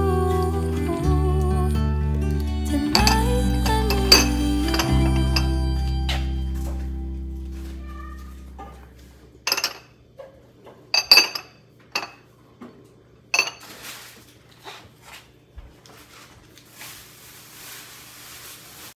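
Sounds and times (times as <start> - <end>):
glass lids clinking on jars: 2.9 - 5.5, 9.5 - 9.9, 11.0 - 12.2, 13.4 - 13.6.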